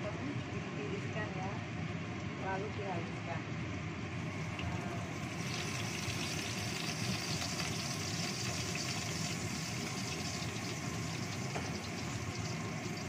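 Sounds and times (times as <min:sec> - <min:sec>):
gas burner roar: 0:04.0 - 0:13.0
food sizzling in oil: 0:04.2 - 0:13.0.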